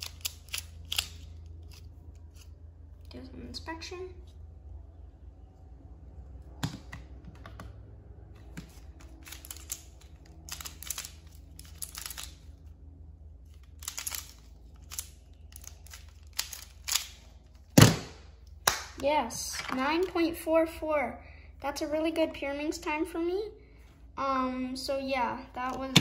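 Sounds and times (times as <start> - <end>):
plastic puzzle clicking: 9.2 - 12.4, 13.7 - 17.2.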